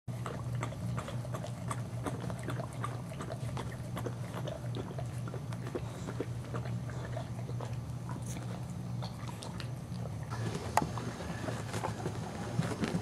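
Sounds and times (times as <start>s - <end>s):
steady low hum: 0.1s - 13.0s.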